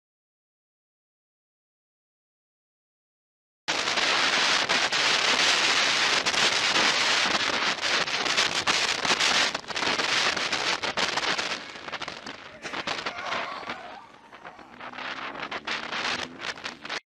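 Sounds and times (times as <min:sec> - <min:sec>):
wind rushing over microphone: 0:03.7 - 0:17.0.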